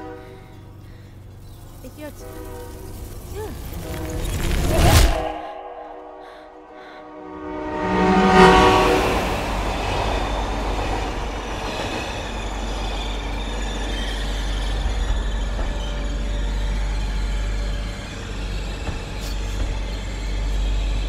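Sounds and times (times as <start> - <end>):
train horn: 0.0 - 1.1, 2.0 - 10.3
train passing: 0.0 - 21.0.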